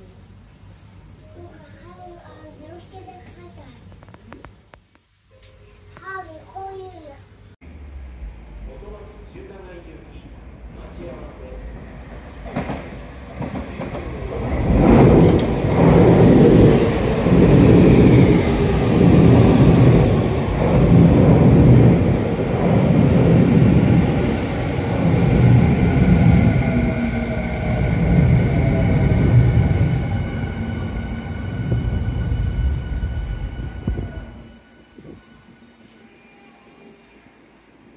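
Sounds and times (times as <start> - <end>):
high train whine: 7.4 - 37.9
train wheels rumbling: 7.8 - 37.1.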